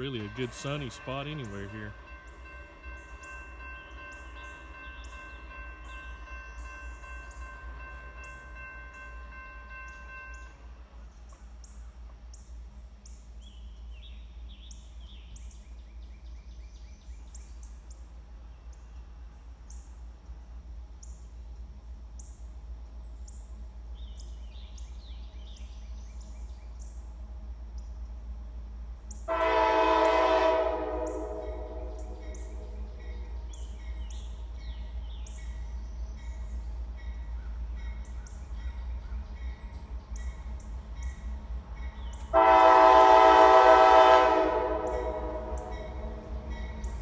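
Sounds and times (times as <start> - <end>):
railroad crossing bell ringing: 0.0 - 11.0, 29.3 - 47.0
songbirds chirping: 0.0 - 47.0.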